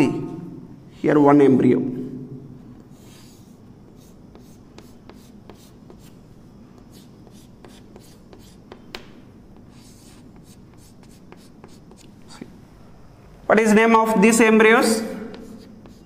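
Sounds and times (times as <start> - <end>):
chalk scratching on chalkboard: 2.9 - 6.2, 6.8 - 8.8, 9.6 - 12.5, 15.2 - 16.0
chalk tapping on chalkboard: 3.0 - 6.2, 6.8 - 12.5, 15.3 - 16.0.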